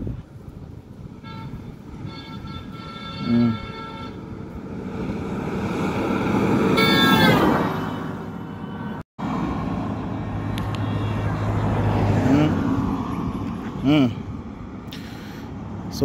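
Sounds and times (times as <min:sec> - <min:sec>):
road and engine noise: 0:00.0 - 0:16.0
car horn sounding: 0:01.2 - 0:04.4, 0:06.8 - 0:09.0
vehicle speeding past: 0:04.6 - 0:13.6.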